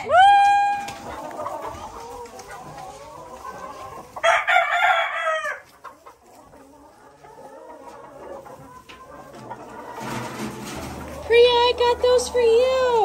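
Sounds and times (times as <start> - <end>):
hens clucking softly: 0.8 - 11.3
rooster crowing: 4.2 - 5.6.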